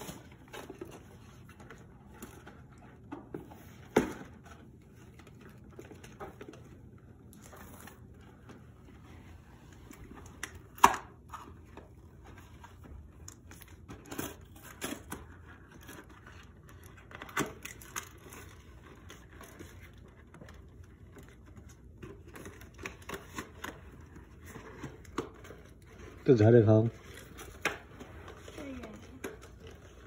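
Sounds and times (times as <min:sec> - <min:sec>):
cardboard clicks and rustles: 0:00.0 - 0:08.9.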